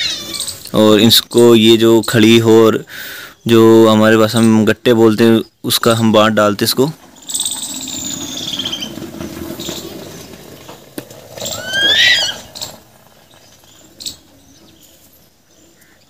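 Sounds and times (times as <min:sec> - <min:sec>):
loud high squeal: 0:11.4 - 0:12.7.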